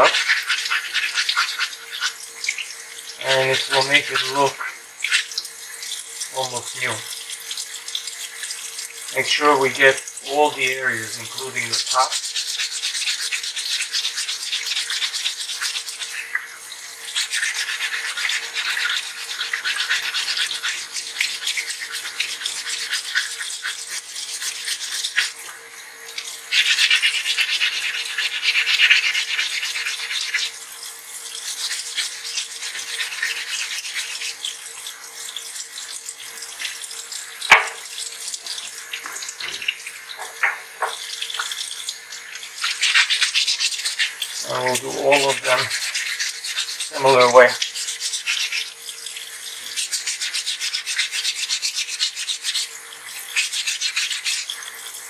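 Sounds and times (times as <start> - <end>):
running tap water: 0.0 - 55.0
sharp knock: 37.5 - 37.8.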